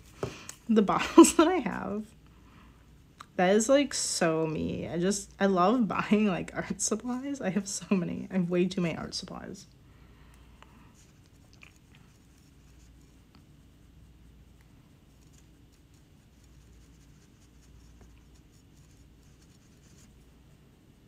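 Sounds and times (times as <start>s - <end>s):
low room hum: 0.0s - 21.0s
paintbrush dabbing ticks: 10.9s - 20.6s.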